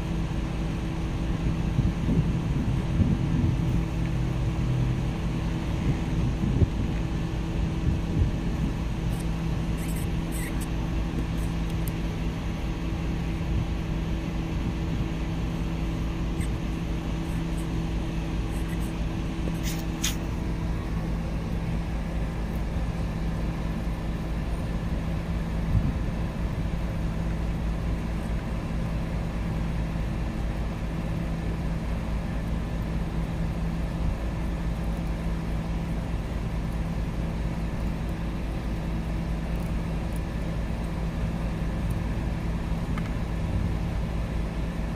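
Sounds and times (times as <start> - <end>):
low mechanical hum: 0.0 - 44.9.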